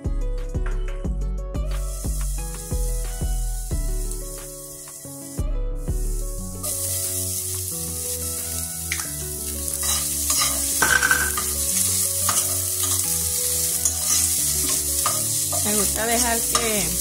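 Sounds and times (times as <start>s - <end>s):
background music: 0.0s - 17.0s
garlic and onion sizzling in oil: 1.7s - 17.0s
metal spoon scraping pan: 9.8s - 11.6s, 13.8s - 15.8s.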